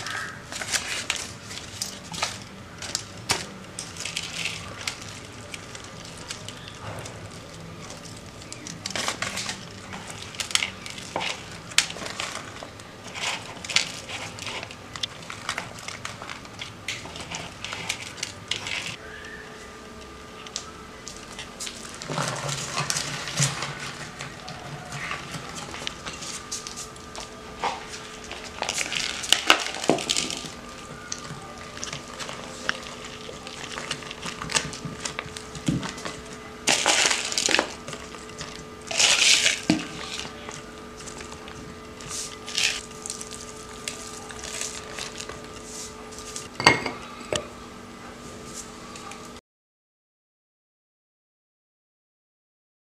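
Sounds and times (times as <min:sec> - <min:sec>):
pulp rustling and scraping in jar: 0:00.0 - 0:19.0, 0:21.1 - 0:46.7.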